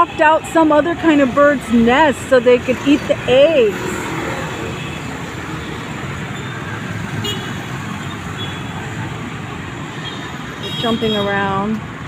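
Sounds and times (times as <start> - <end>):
road traffic noise: 0.0 - 12.0.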